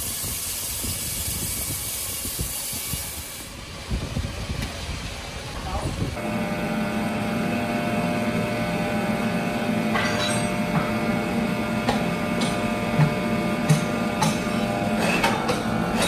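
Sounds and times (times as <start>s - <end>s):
electric motor humming: 6.2s - 16.0s.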